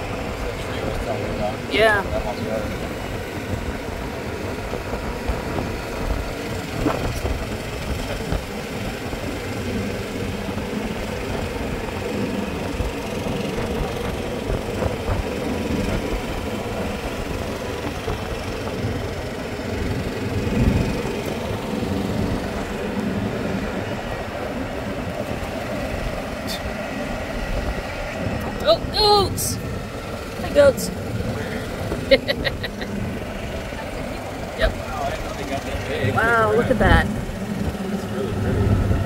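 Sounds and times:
golf cart rumbling and rattling: 0.0s - 39.0s.

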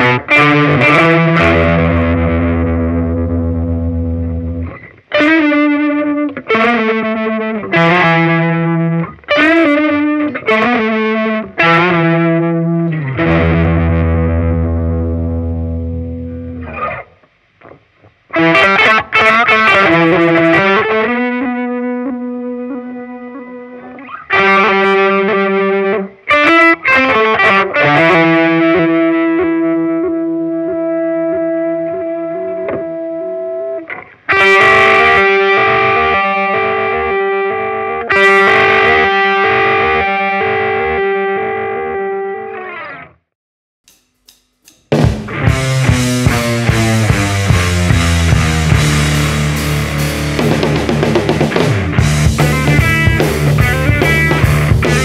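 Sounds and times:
overdriven electric guitar arpeggios: 0.0s - 43.3s, 45.0s - 55.0s.

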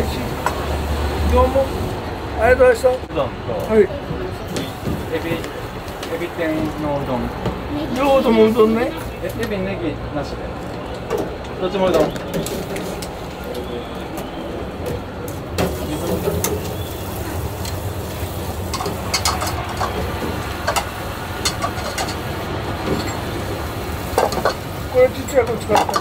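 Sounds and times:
clinks of strainers and bowls: 25.3s - 26.0s.

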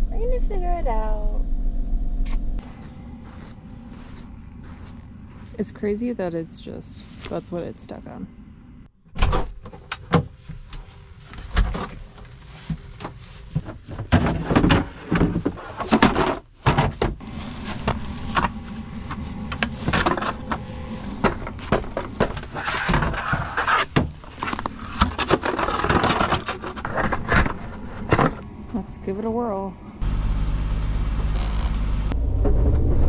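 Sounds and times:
scraping and crunching in icy snow: 2.6s - 5.7s.

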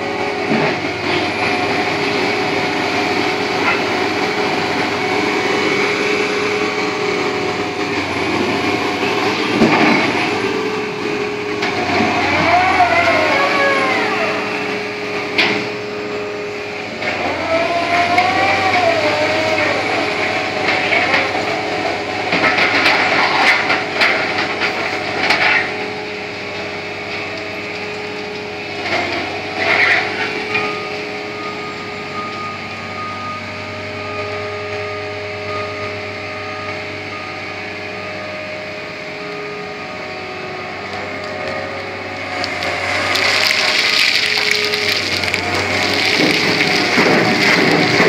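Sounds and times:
diesel engine running: 0.0s - 48.0s
clanking and rattling: 44.4s - 48.0s.

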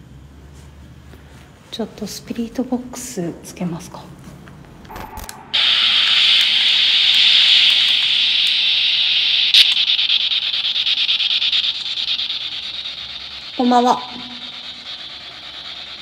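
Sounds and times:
radio static sweeping stations: 4.9s - 16.0s.

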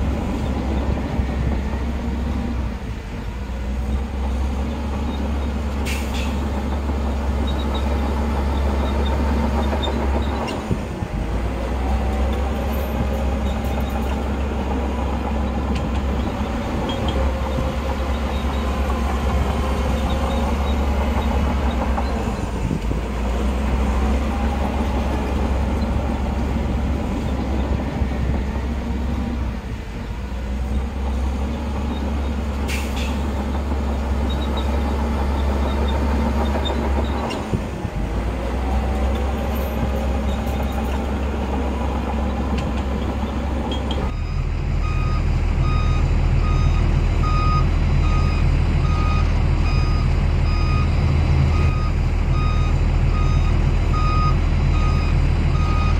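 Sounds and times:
diesel machinery running: 0.0s - 55.9s
reversing alarm beeping: 44.1s - 55.9s.

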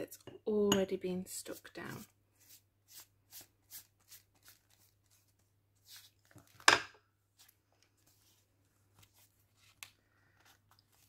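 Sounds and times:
glue brush stroking paper: 1.4s - 6.4s
paper rustling: 3.7s - 6.6s, 7.4s - 11.0s.

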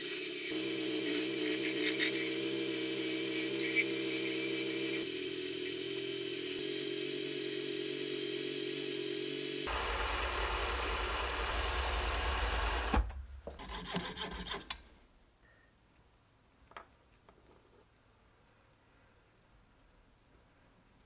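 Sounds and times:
file rasping against spinning brass: 0.5s - 5.0s, 13.6s - 14.8s.

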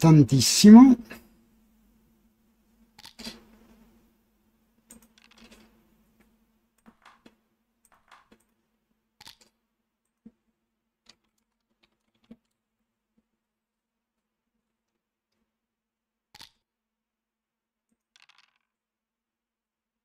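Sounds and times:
computer clicks and taps: 6.8s - 8.5s.

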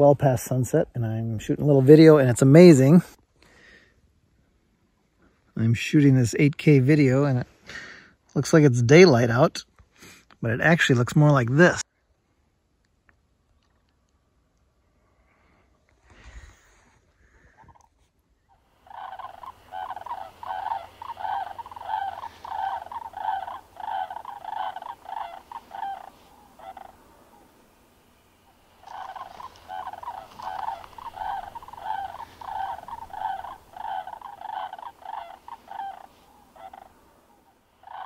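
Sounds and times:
cranes bugling: 18.7s - 38.0s.

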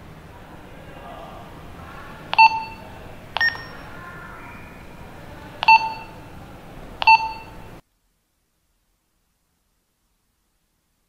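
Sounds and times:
faint hiss: 0.0s - 11.0s
walkie-talkie key beeps: 2.4s - 2.8s, 3.4s - 3.9s, 5.6s - 6.2s, 7.0s - 7.6s.

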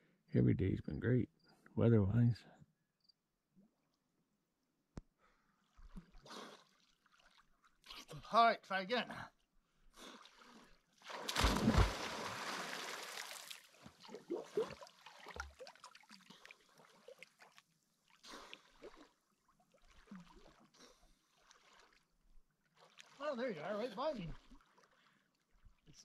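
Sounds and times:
deep thump of body hitting water: 11.1s - 13.0s
loud splash into water: 11.1s - 13.6s.

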